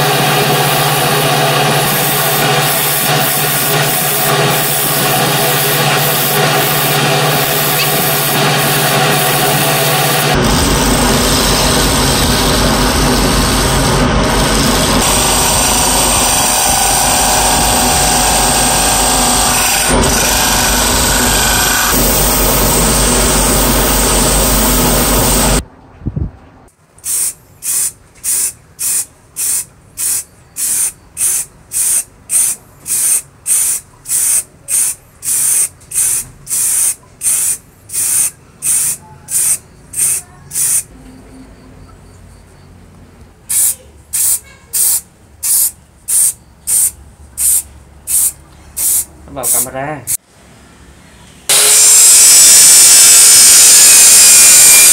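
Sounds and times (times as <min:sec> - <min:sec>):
wood lathe cutting: 0:00.0 - 0:25.6, 0:51.5 - 0:54.9
aerosol spray can hissing: 0:27.0 - 0:40.9, 0:43.5 - 0:49.6.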